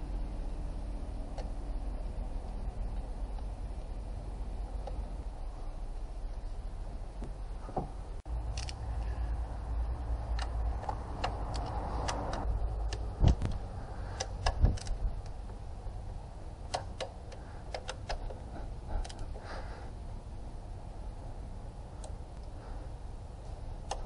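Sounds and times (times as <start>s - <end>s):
low steady hum: 0.0s - 24.0s
metallic clicks of hand tools: 10.3s - 13.6s, 16.7s - 18.4s.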